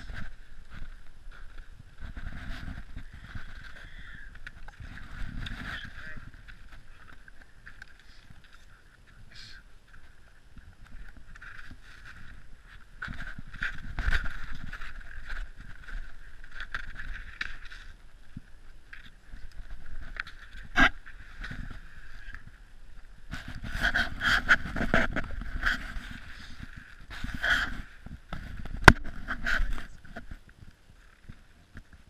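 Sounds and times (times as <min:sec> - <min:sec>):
clothing rubbing against camera: 0:00.0 - 0:07.2, 0:23.3 - 0:30.4.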